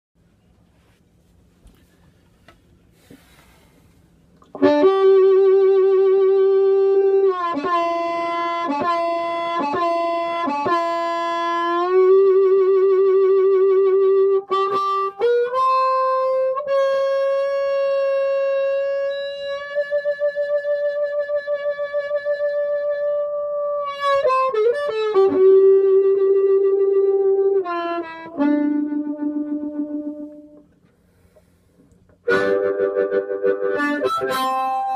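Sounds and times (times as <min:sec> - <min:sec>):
faint hum: 0:00.2 - 0:07.5
bluesy harmonica: 0:04.5 - 0:34.9.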